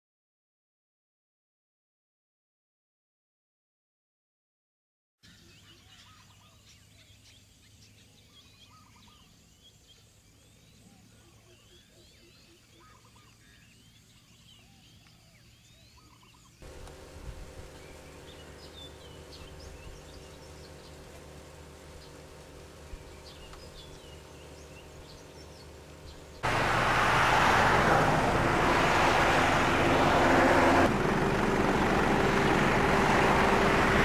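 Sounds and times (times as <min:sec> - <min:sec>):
birds chirping: 0:05.3 - 0:34.0
low rumble: 0:16.6 - 0:34.0
rapid pulsed calls: 0:16.6 - 0:34.0
steady hum: 0:16.6 - 0:34.0.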